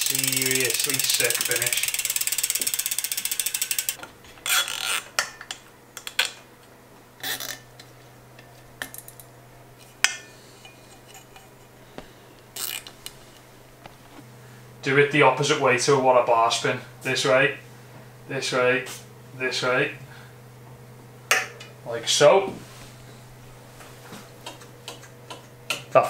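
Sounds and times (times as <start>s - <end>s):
bicycle freehub ratchet clicking: 0.0s - 5.0s, 12.6s - 12.9s.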